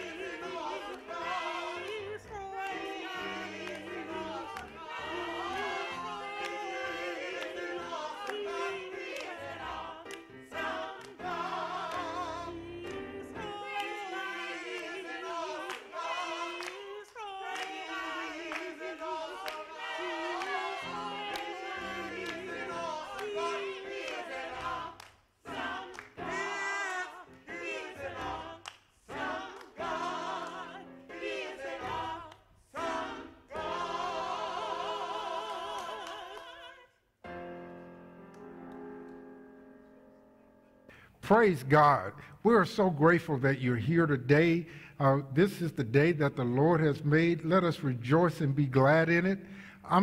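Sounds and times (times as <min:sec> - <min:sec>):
gospel choir singing: 0:00.0 - 0:39.9, 0:41.3 - 0:50.0
keyboard accompaniment: 0:37.2 - 0:42.0.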